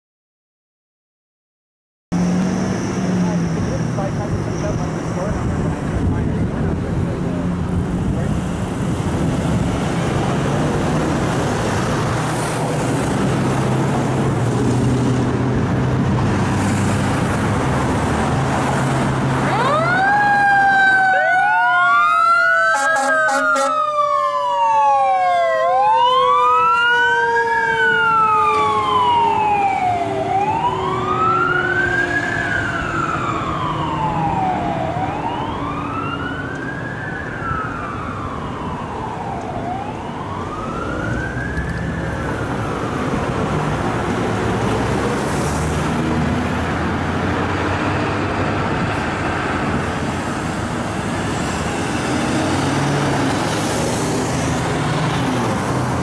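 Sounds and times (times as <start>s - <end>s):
vehicle engine: 2.1s - 21.1s, 28.0s - 56.0s
electronic siren wailing: 19.4s - 43.3s.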